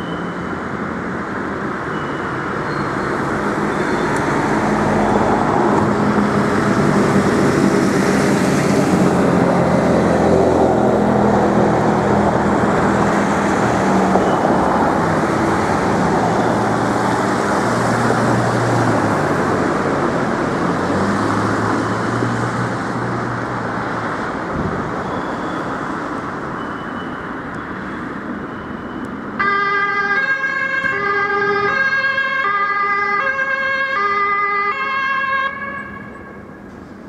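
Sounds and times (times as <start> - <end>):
passing vehicle engine: 0.0 - 26.5
road traffic: 0.0 - 37.0
two-tone emergency siren: 26.6 - 36.5.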